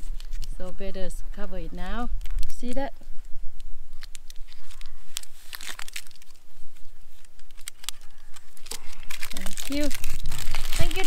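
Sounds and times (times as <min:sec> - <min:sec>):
paper wrapper crinkling and tearing: 0:00.0 - 0:00.8, 0:03.9 - 0:11.0.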